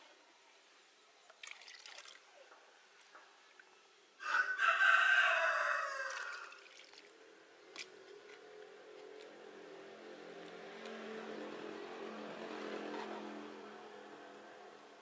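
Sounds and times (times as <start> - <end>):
rooster crowing: 4.2 - 6.6
faint engine hum: 5.7 - 15.0.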